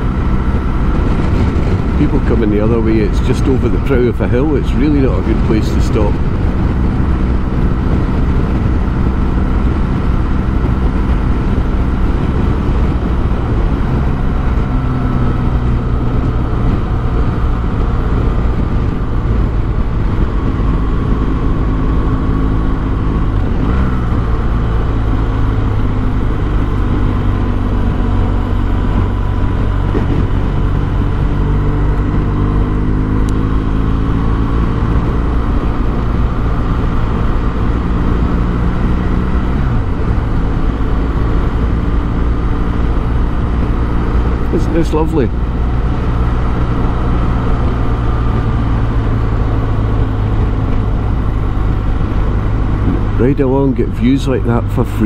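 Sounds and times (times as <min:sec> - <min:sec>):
motorcycle engine running: 0:00.0 - 0:55.0
wind noise on microphone: 0:00.0 - 0:55.0.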